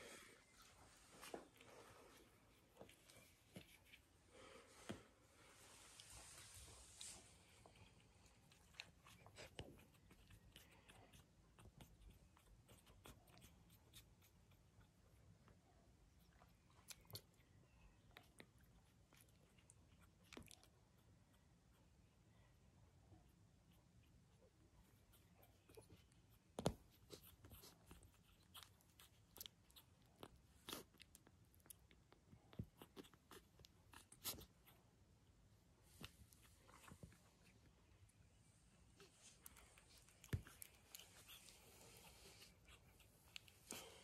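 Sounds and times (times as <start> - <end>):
puppies rustling in a dog bed: 0.0 - 13.5, 24.8 - 29.0, 38.4 - 44.0.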